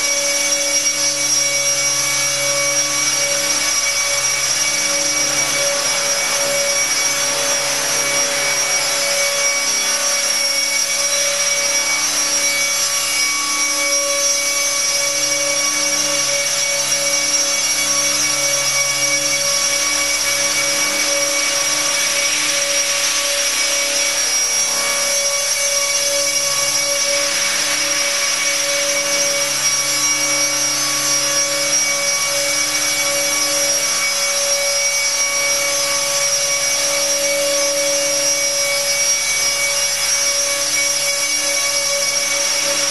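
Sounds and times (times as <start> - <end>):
electric motor whine: 0.0 - 42.9
rotor blades rushing: 0.3 - 34.6.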